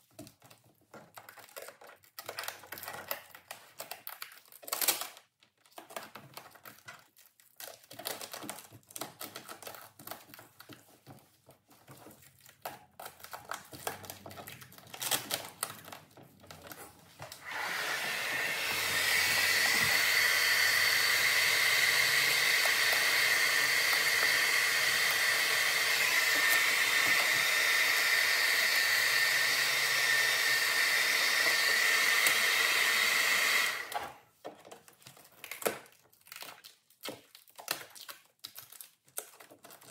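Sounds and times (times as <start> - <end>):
vinyl wrap crinkling: 0.1 - 17.4, 33.9 - 39.9
hair dryer whining: 17.2 - 34.2.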